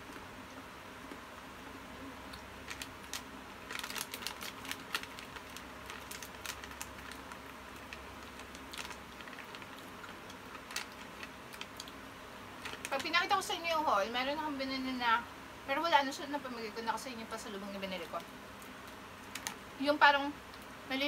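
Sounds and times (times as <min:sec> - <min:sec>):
plastic pouch crinkling: 0:02.6 - 0:12.0, 0:12.6 - 0:13.7, 0:18.0 - 0:19.7.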